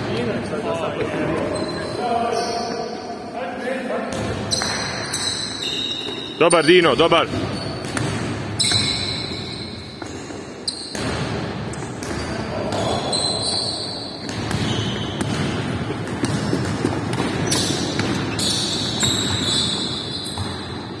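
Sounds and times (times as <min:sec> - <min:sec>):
basketball bouncing on wooden floor: 0:07.3 - 0:10.2, 0:14.2 - 0:21.0.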